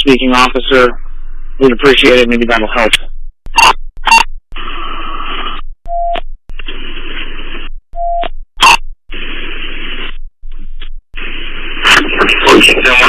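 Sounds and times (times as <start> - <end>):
radio static hiss bursts: 0.0 - 5.8, 6.5 - 7.8, 8.6 - 13.0
radio squelch crackle: 0.1 - 13.0
short electronic beeps: 3.5 - 4.4, 5.9 - 6.3, 8.0 - 8.9.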